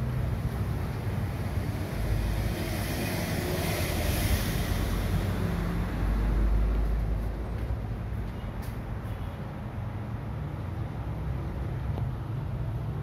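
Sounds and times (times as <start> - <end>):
exhaust fan running: 0.0 - 9.0.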